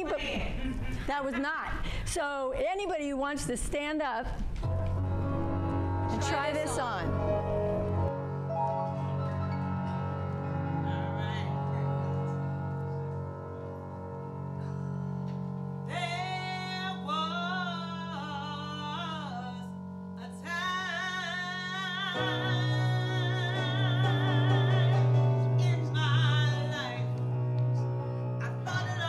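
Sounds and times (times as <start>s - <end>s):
electric keyboard chords: 4.7s - 29.0s
woman singing with vibrato: 10.7s - 12.3s, 15.9s - 27.2s, 28.4s - 29.0s.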